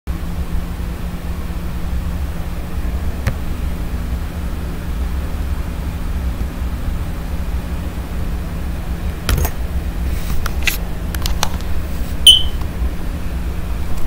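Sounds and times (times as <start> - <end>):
short high beep: 12.2 - 12.6.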